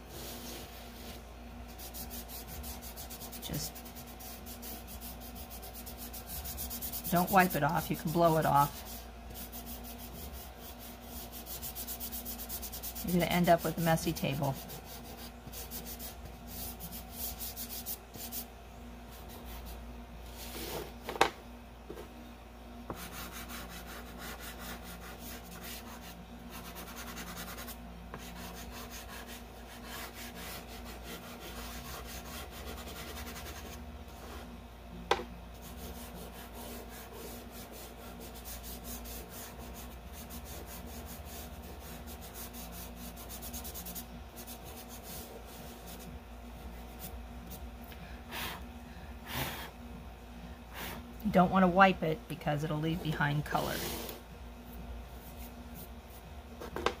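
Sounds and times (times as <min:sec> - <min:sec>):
pastel scraping on paper: 0:00.1 - 0:18.5, 0:22.9 - 0:34.5, 0:35.6 - 0:46.1
fingertips rubbing paper: 0:23.0 - 0:33.8.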